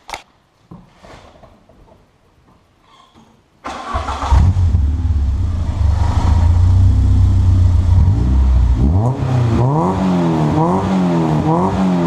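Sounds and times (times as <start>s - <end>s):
car engine starting and idling: 3.6s - 11.6s.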